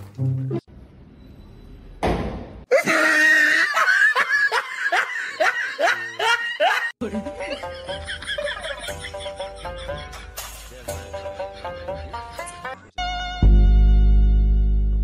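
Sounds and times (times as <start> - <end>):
person laughing shrilly: 2.7 - 7.0.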